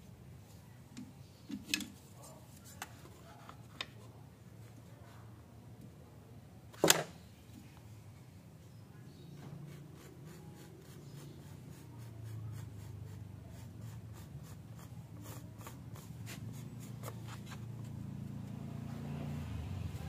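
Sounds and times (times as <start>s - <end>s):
marker pen scratching on wood: 9.7s - 17.8s.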